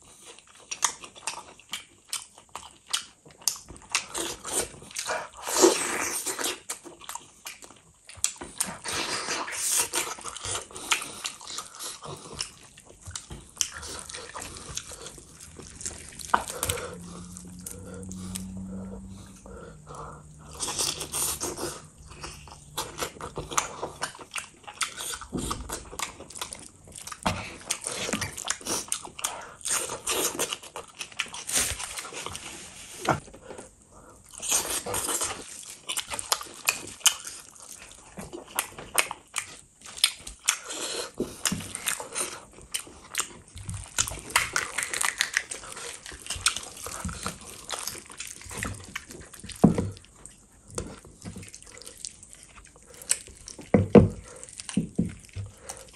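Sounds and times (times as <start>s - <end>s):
person chewing wetly: 0.0s - 32.5s, 33.2s - 55.9s
lip-smacking: 7.5s - 30.7s, 39.9s - 55.9s.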